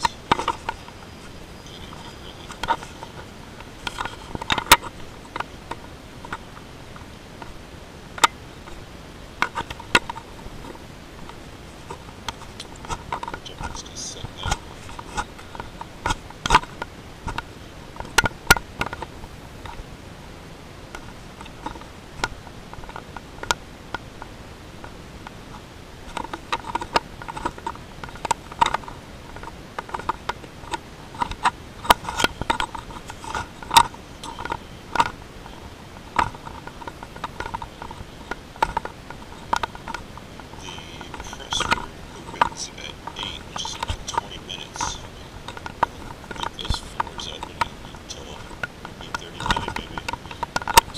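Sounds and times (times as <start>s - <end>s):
camera rattling in mount: 0.0s - 1.0s, 44.8s - 50.9s.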